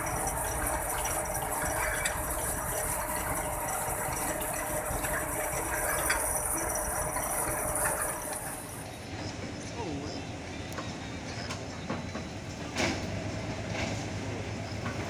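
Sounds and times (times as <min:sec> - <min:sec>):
winch gear rattling: 0:00.0 - 0:09.0.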